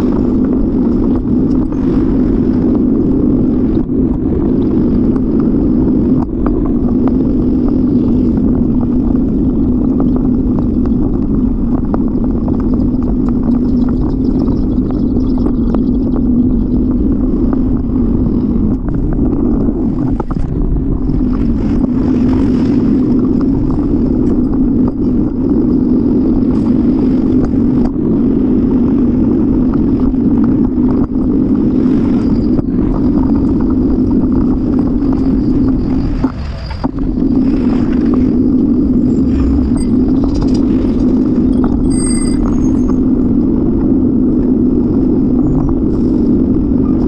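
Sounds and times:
bicycle road noise: 0.0s - 47.0s
faint high whine: 0.0s - 47.0s
wind buffeting: 0.0s - 47.0s.

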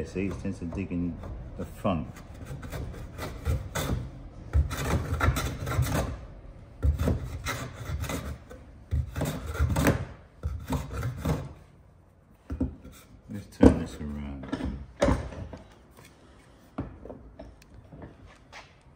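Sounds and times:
plane shaving wood: 0.0s - 6.2s, 6.8s - 11.6s.

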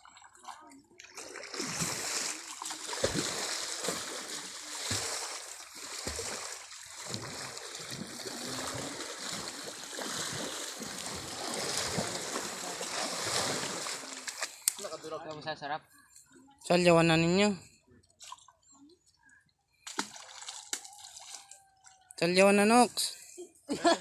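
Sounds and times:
water splashing and sloshing: 0.0s - 15.4s, 18.0s - 18.9s, 19.7s - 22.2s.

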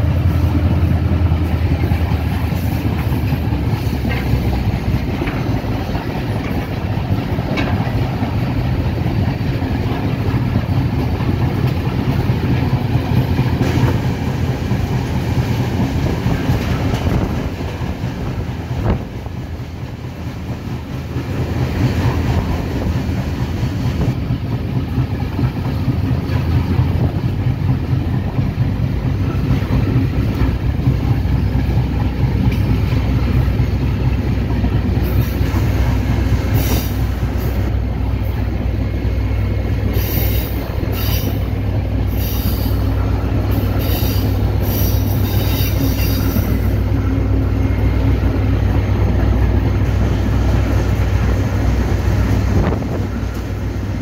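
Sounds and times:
train rumble and drone: 0.0s - 54.0s
high-pitched wheel squeals on rails: 39.9s - 41.5s, 43.5s - 46.8s.

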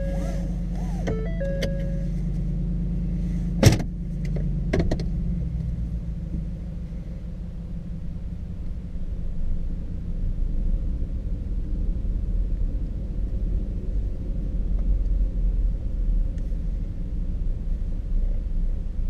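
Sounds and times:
dashboard chime: 0.0s - 2.3s
gear shifter clunk: 0.0s - 2.5s, 3.5s - 5.1s
truck engine idling: 0.0s - 10.1s.

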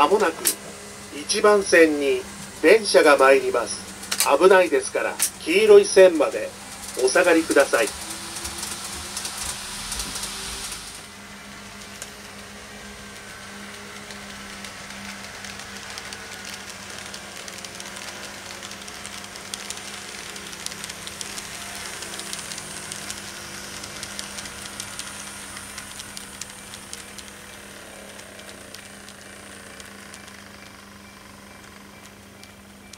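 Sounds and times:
hiss: 0.0s - 31.4s
model train motor whine: 0.0s - 32.9s
wheels clicking over rails: 0.0s - 32.9s.

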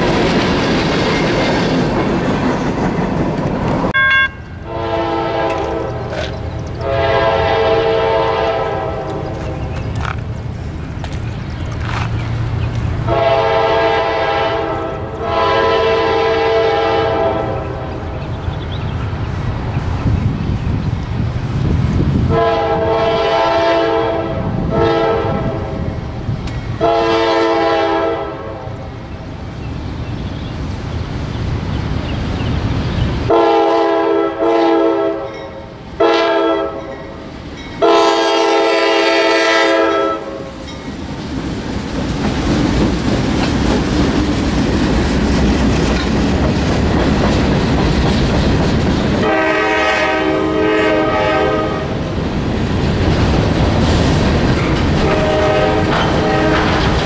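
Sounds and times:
train wheels clickety-clack: 0.0s - 4.0s, 5.4s - 7.0s, 8.6s - 13.2s, 26.0s - 26.9s, 37.1s - 57.0s
locomotive rumble: 0.0s - 57.0s
train air horn blasts: 3.9s - 9.5s, 13.0s - 17.9s, 22.3s - 25.9s, 26.8s - 28.9s, 33.3s - 37.0s, 37.8s - 40.6s, 49.2s - 52.0s, 55.0s - 56.8s.

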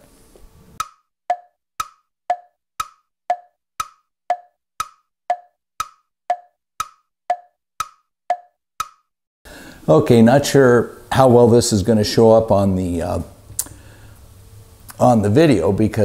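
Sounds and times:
wood-block tick-tock: 0.8s - 9.1s.

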